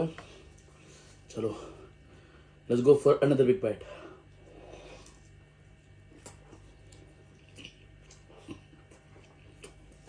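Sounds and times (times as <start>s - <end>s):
steady low hum: 0.0s - 10.0s
faint chewing: 4.3s - 10.0s.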